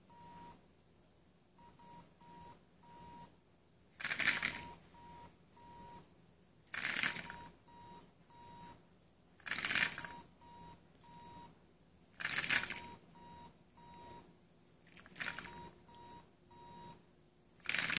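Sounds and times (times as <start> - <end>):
short electronic beeps: 4.6 - 6.0, 7.2 - 8.8, 10.0 - 11.5, 12.7 - 14.3, 15.2 - 17.0.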